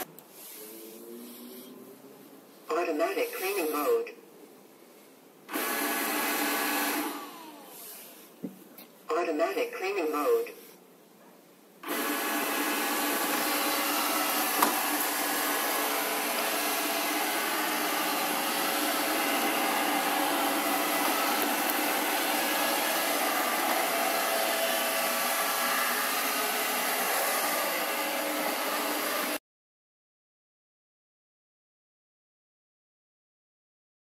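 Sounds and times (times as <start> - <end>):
robot vacuum cleaner whirring: 5.5 - 8.3, 11.8 - 29.4.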